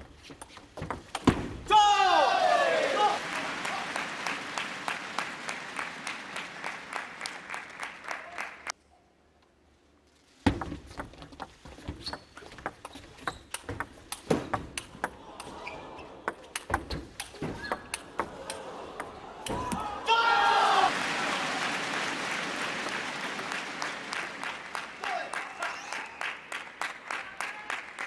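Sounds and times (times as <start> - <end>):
crowd noise: 2.2 - 8.7, 14.6 - 27.6.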